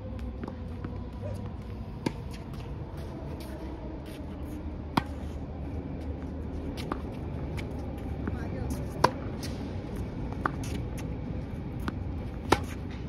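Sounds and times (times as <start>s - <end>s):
racket hitting tennis ball: 8.8s - 11.1s, 11.8s - 13.0s.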